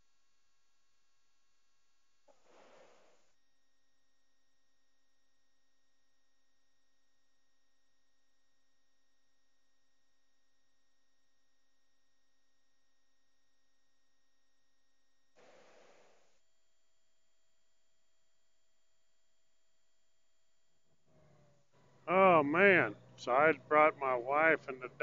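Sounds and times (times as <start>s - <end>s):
soft hiss: 2.3s - 3.3s, 15.4s - 16.4s.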